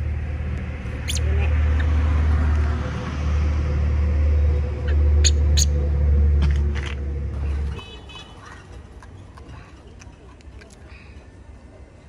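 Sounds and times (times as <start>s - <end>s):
low rumble with hum: 0.0s - 7.7s.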